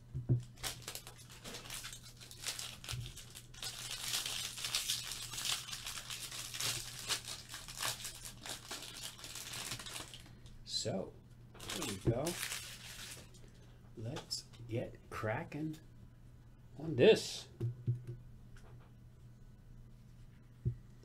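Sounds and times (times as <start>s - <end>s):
low steady hum: 0.0s - 21.0s
card wrappers tearing and crinkling: 0.5s - 10.3s, 11.6s - 13.4s.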